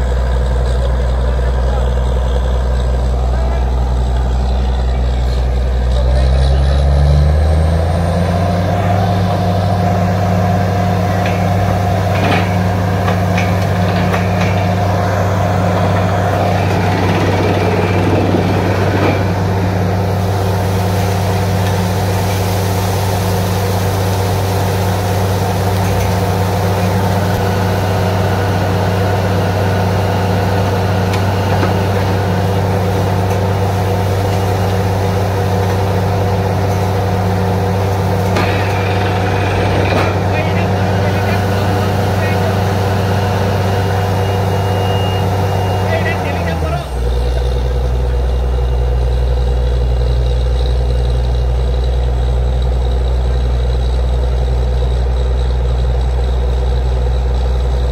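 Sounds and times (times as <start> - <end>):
drilling rig diesel engine drone: 0.0 - 57.9
compressed air hissing: 19.3 - 27.1.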